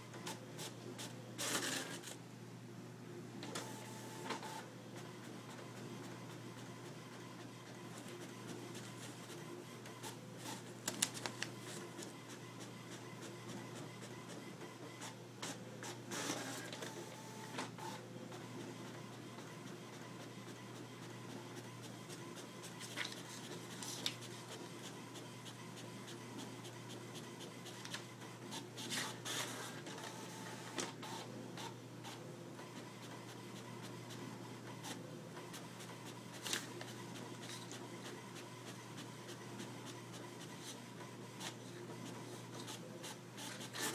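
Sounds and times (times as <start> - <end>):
inkjet printer humming: 0.0 - 2.3, 3.2 - 43.9
paper rustling and clicks: 10.8 - 12.1, 22.9 - 24.2.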